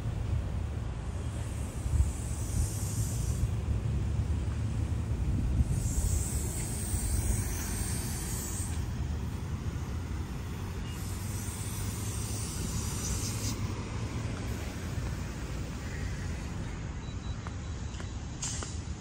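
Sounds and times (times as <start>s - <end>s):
low rumble of vehicle traffic: 0.0s - 19.0s
high hiss: 1.1s - 3.7s, 5.6s - 16.6s.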